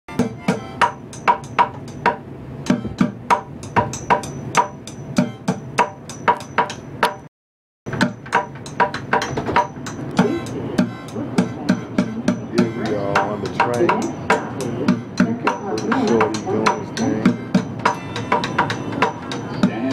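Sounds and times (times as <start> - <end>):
drumsticks beating plastic bucket: 7.9 - 19.8.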